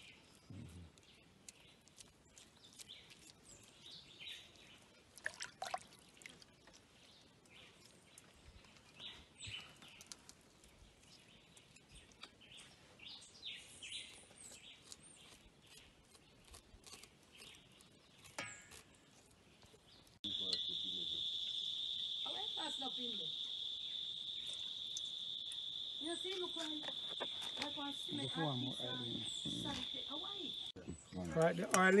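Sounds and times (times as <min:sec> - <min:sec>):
faint bird chirps: 0:19.6 - 0:31.4.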